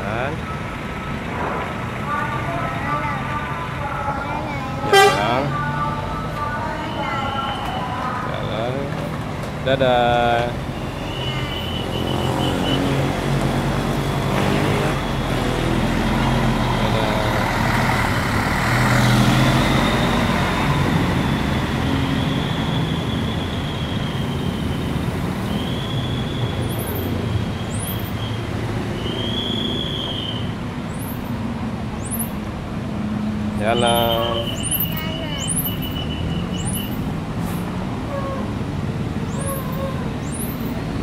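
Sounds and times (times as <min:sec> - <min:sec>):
coach diesel engine driving past: 0:00.0 - 0:41.0.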